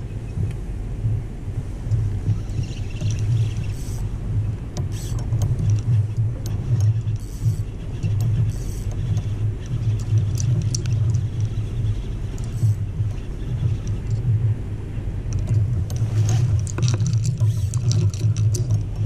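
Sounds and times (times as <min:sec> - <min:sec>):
wavering low rumble: 0:00.0 - 0:19.0
faint scattered ticks: 0:04.8 - 0:14.3.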